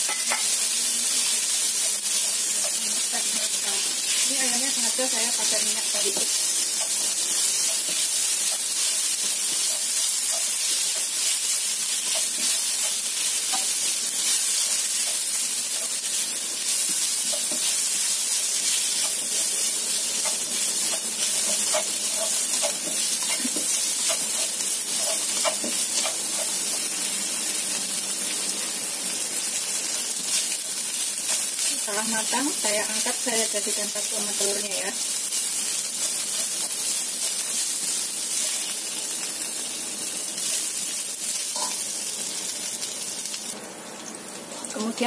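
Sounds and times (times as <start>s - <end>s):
spatula scraping and tapping pan: 0.0s - 0.6s, 16.8s - 17.8s, 19.0s - 26.9s, 41.5s - 41.8s
chicken sizzling in hot oil: 0.0s - 45.0s.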